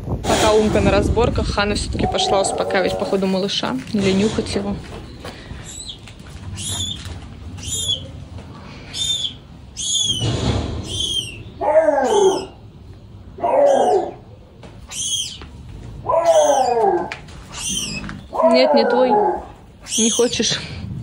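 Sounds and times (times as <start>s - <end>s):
kitten squeaking: 6.6s - 8.1s, 9.0s - 12.5s, 14.9s - 15.4s, 17.5s - 19.0s, 19.8s - 20.6s
lower falling cries: 8.9s - 12.7s, 16.0s - 20.5s.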